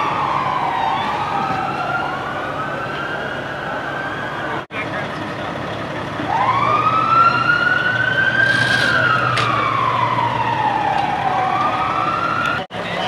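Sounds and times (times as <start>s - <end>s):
siren wailing: 0.0s - 4.7s, 6.1s - 12.7s.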